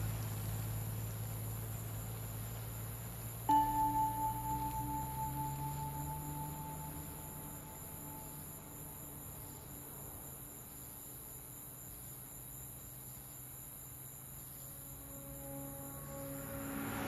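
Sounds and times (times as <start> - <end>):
crickets chirping: 0.0 - 17.0
faint low drone: 3.5 - 9.4, 14.5 - 17.0.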